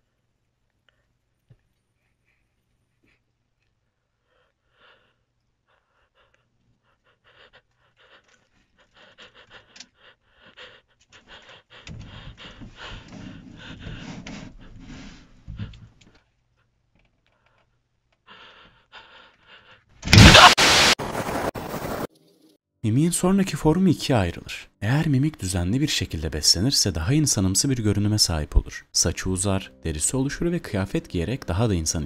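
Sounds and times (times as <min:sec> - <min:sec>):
person panting heavily: 0:04.1 - 0:16.0, 0:17.4 - 0:19.9.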